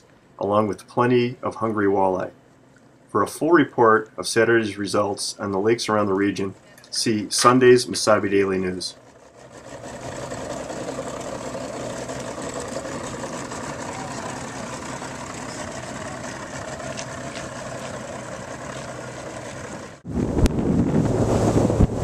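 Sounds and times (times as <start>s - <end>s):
outboard motor idling: 6.3s - 20.1s
wind buffeting microphone: 12.4s - 22.0s.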